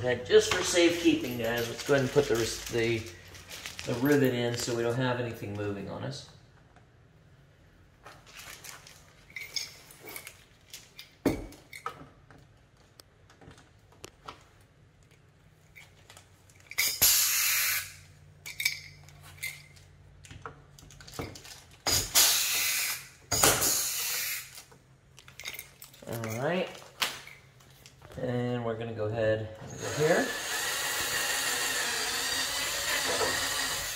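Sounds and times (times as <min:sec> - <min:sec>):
rivet gun air hiss blasts: 0:16.8 - 0:18.0, 0:21.9 - 0:24.6.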